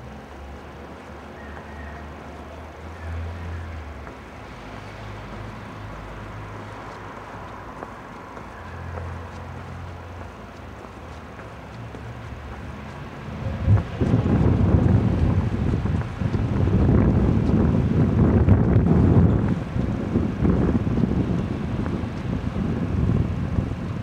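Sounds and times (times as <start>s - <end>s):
low rumble of traffic: 0.0s - 24.0s.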